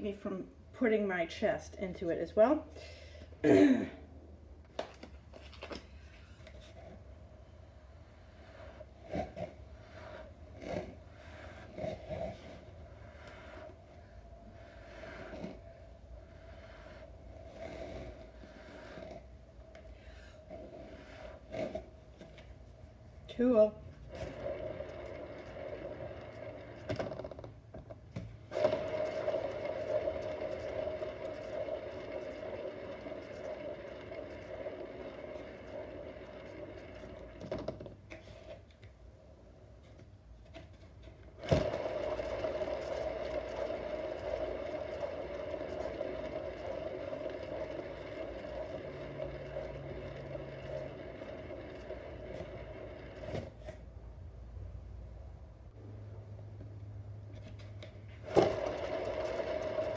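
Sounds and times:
turntable bearing whirring: 24.0s - 38.6s, 41.3s - 53.8s, 57.8s - 59.9s.

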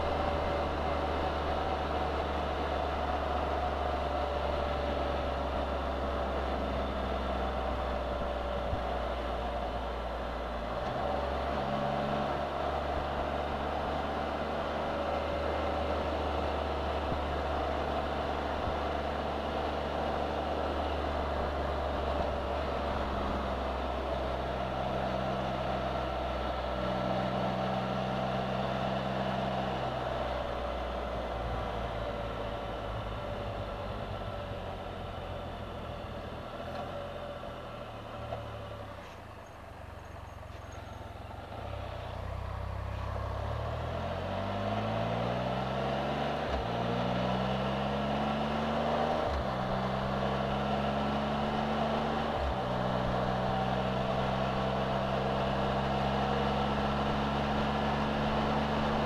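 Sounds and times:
motorcycle engine accelerating: 40.1s - 59.0s.

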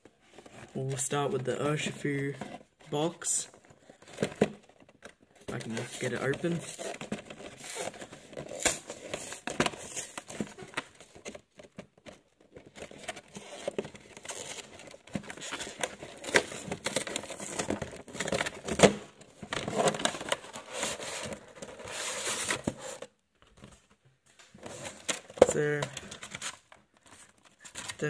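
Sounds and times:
packaging crinkling and tearing: 3.8s - 22.8s.

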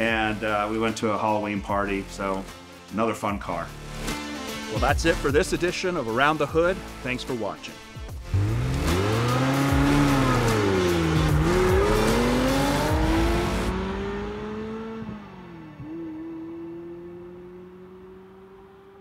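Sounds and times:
car engine revving: 8.2s - 19.0s.

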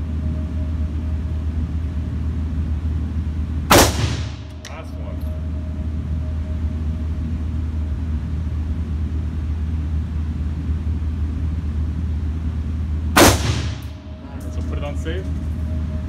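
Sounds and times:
low rumble: 0.0s - 16.0s
rifle shot with echo: 3.7s - 4.4s, 13.2s - 13.9s.

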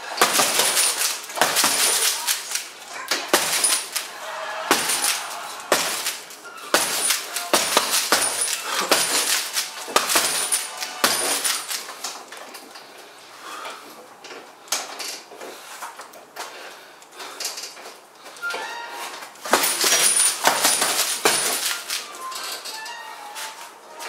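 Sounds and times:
boxing gloves punching tyre bag: 0.0s - 2.3s, 3.2s - 4.0s, 4.6s - 11.7s.

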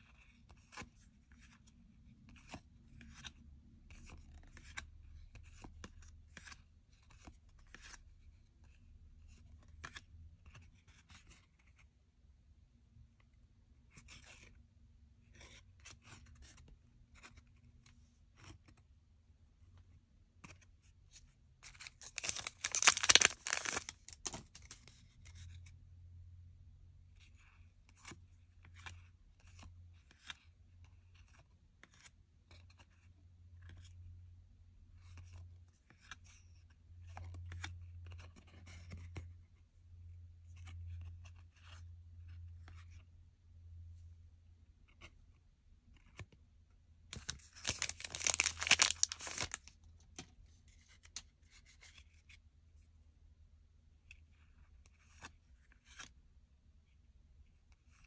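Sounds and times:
trading cards being shuffled: 21.6s - 25.4s, 47.1s - 52.3s
crackling rustle: 22.0s - 24.4s.

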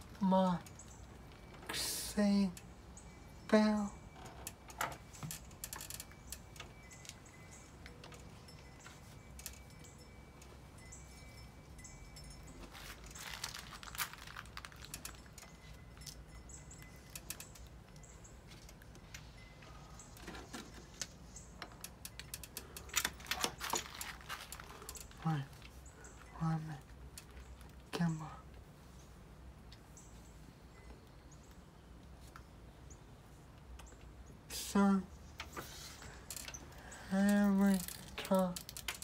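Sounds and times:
seatbelt buckle clicks and rattles: 17.1s - 19.1s, 20.2s - 25.1s, 37.8s - 39.0s.

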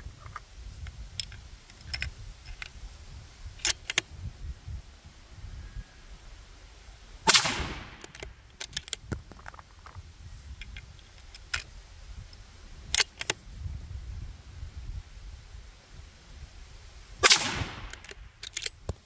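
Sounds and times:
rifle shot with echo: 7.3s - 8.1s, 17.2s - 18.0s
sharp clicks: 7.3s - 9.2s, 17.2s - 19.0s.

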